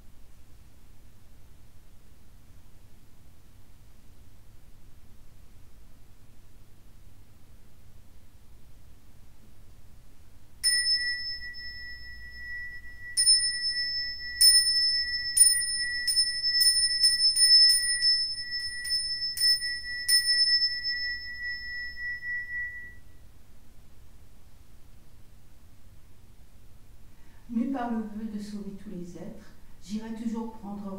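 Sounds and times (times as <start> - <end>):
handheld bowl bell ringing: 10.6 - 23.2.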